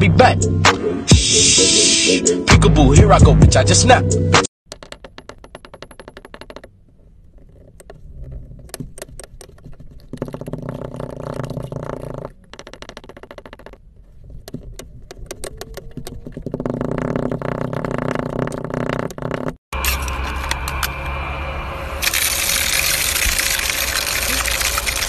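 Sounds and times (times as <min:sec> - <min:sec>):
muddler crunching blocks in glass: 0:22.0 - 0:25.0.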